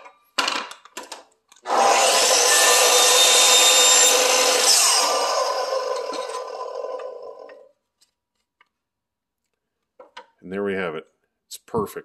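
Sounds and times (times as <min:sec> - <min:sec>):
miter saw cutting wood: 0:01.6 - 0:07.7.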